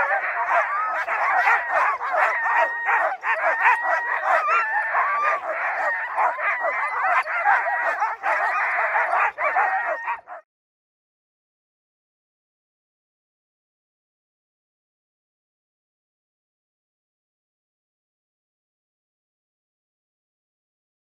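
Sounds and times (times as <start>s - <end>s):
huskies barking and yelping: 0.0s - 10.4s.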